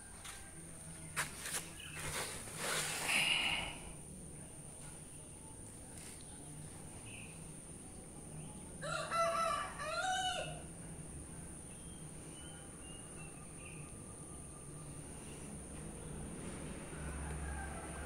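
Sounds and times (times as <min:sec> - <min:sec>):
faint bird chirps: 0:06.8 - 0:08.6, 0:11.7 - 0:15.6
rooster crowing: 0:08.8 - 0:10.7, 0:16.8 - 0:18.0.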